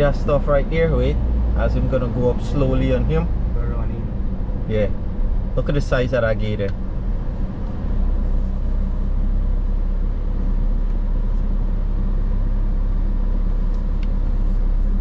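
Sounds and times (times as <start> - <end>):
car driving on gravel road: 0.0 - 11.6.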